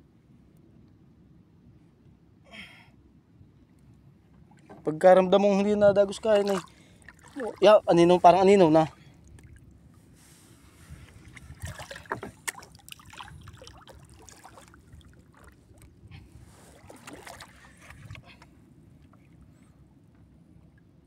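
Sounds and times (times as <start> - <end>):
water lapping against boat hull: 5.9 - 19.6.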